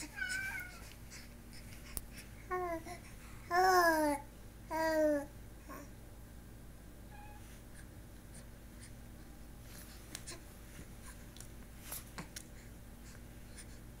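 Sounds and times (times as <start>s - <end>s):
low steady hum: 0.0s - 14.0s
soft clicks and rustles: 9.7s - 13.2s.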